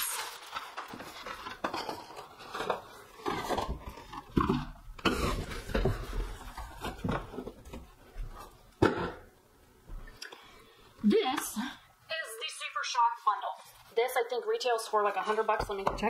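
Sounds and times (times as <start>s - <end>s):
packaging rustling and crinkling: 0.0s - 8.8s.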